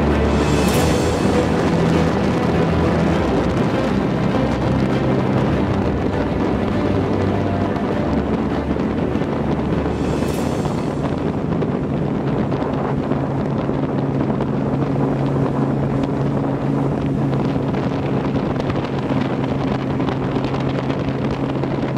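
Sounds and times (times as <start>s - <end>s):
vehicle engine humming: 0.0s - 21.8s
wind buffeting microphone: 0.0s - 21.9s.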